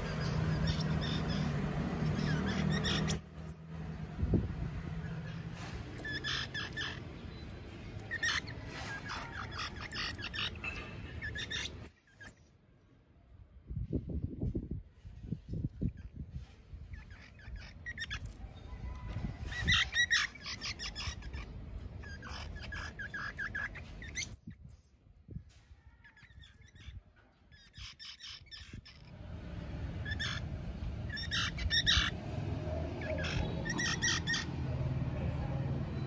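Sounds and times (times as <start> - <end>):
small animals chirping: 0.0 - 3.8, 5.0 - 12.5, 19.5 - 25.0, 33.0 - 34.6.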